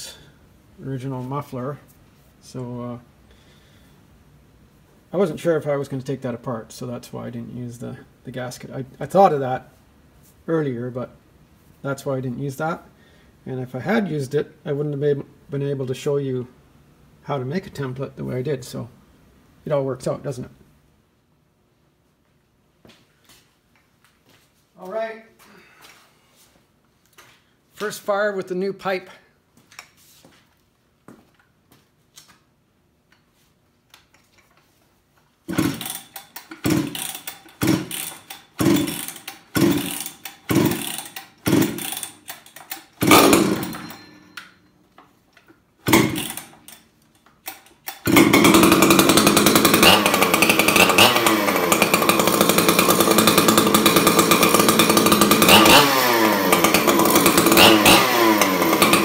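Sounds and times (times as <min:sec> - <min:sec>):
chainsaw running loud: 0:35.5 - 0:42.2, 0:43.0 - 0:44.0, 0:45.9 - 0:46.5, 0:48.0 - 0:59.0
starter cord pulls: 0:35.5 - 0:44.6, 0:45.3 - 0:59.0.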